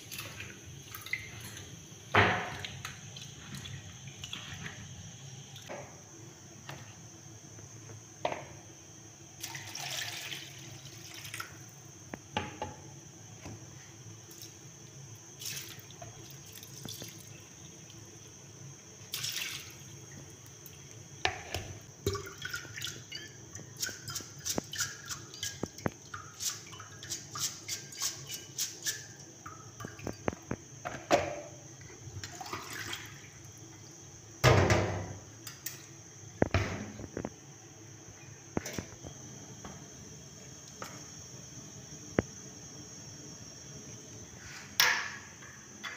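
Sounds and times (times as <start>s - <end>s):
water splashing and draining: 2.4s - 4.9s, 9.4s - 11.6s, 15.4s - 17.8s, 19.1s - 20.0s, 22.0s - 23.2s, 32.2s - 33.4s.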